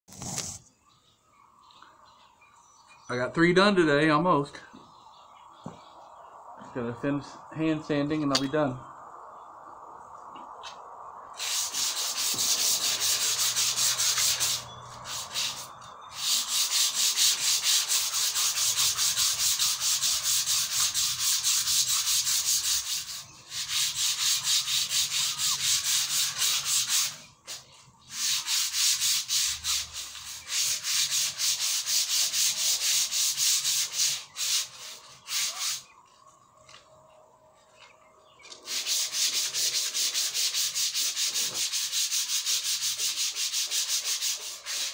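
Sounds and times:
sandpaper rubbing on wood: 11.4 - 36.0, 38.5 - 44.9.

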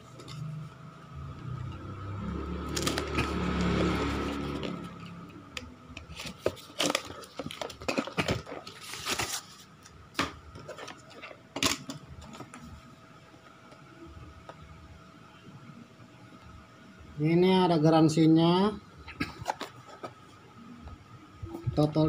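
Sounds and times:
cardboard rustling and ripping: 2.7 - 5.0, 6.0 - 9.7.

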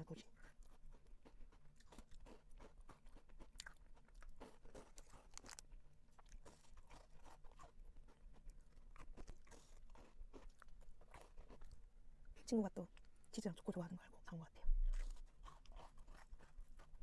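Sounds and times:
chocolate snapping while chewed: 0.7 - 11.8.

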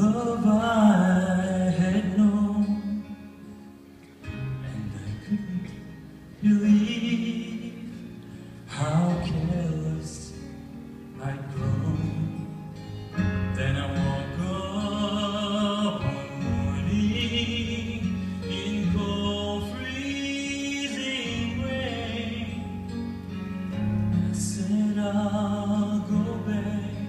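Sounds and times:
person singing with vibrato: 0.0 - 3.5, 4.3 - 27.0
instrumental accompaniment with bass: 0.0 - 27.0.

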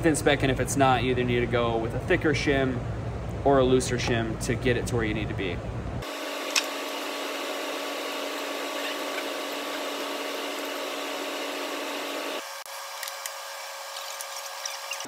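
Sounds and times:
machine hum: 0.9 - 15.0.

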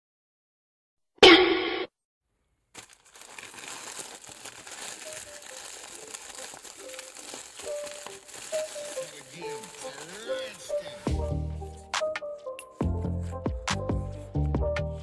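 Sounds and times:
plastic mailer crinkling: 2.7 - 10.8.

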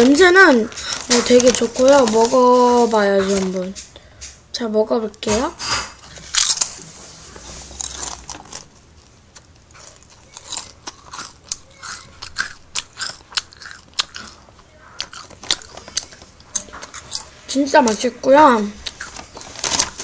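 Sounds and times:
chewing crisp potato chips: 0.0 - 3.6, 6.2 - 6.8, 7.7 - 18.0, 18.6 - 20.0.

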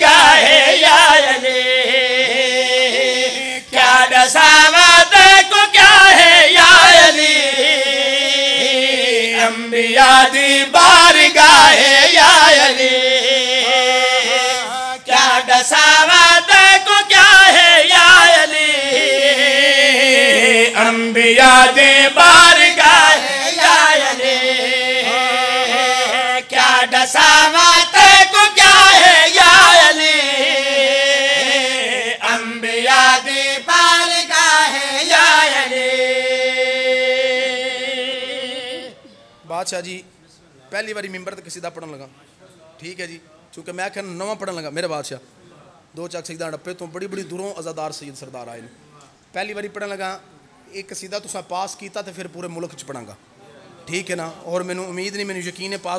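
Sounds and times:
two men singing unaccompanied: 0.0 - 39.1.

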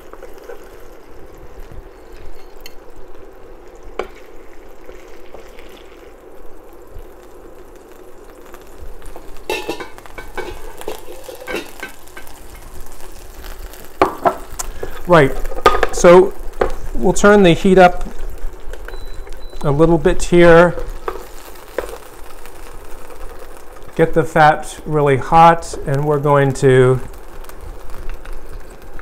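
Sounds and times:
chicken sizzling in a skillet: 0.0 - 29.0
clinks and scrapes: 2.1 - 2.8, 9.5 - 12.7.

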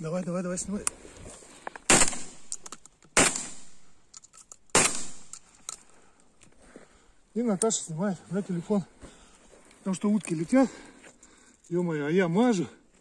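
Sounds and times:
shotgun shots with echo: 1.9 - 2.5, 3.2 - 3.8, 4.7 - 5.3.

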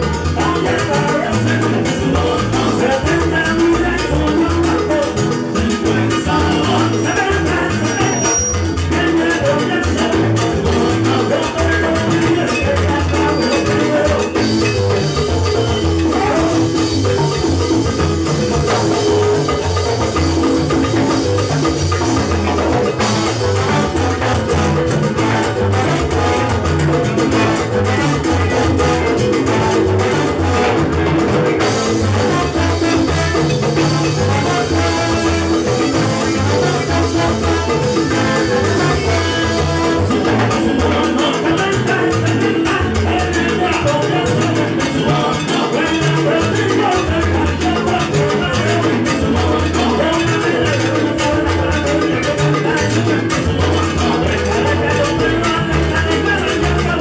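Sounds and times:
live salsa band playing: 0.0 - 57.0
percussion: 0.0 - 57.0
upright bass line: 0.0 - 57.0.

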